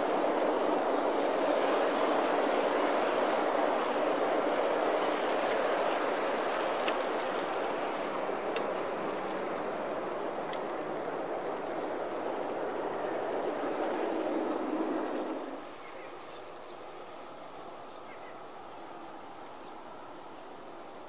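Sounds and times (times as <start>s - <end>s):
model train cars rolling: 0.0s - 15.6s.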